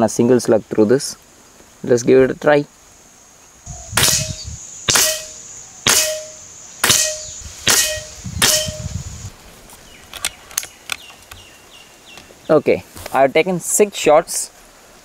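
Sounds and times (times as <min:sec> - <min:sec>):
air rifle shots: 0:04.0 - 0:08.9.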